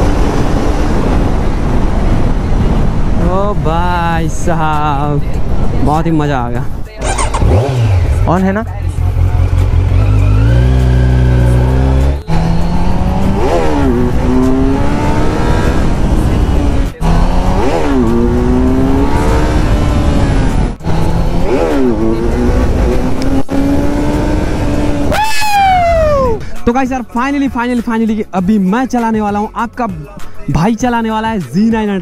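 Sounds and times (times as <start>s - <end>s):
motorcycle engine accelerating: 0.0s - 3.1s, 7.0s - 26.4s.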